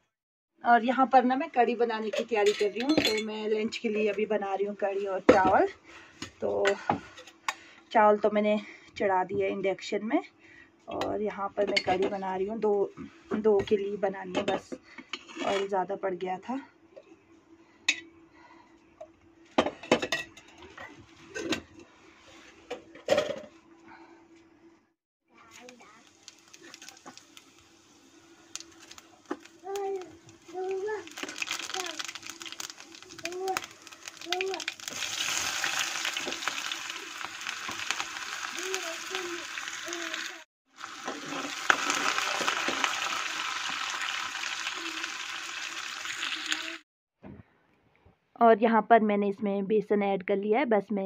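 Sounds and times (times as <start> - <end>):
metal cookware clanking: 2.1 - 3.6
onions sizzling in hot oil: 25.5 - 46.8.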